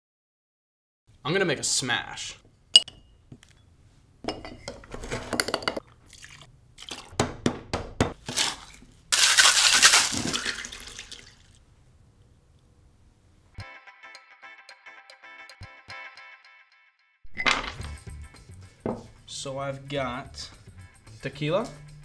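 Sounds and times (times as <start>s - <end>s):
liquid pouring: 5.8s - 7.1s, 8.3s - 11.6s
crushed ice and drink pouring: 8.2s - 11.6s.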